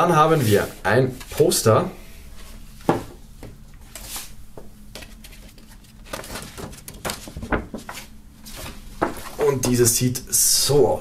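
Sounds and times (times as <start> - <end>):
paper rustling and crinkling: 3.9 - 9.7.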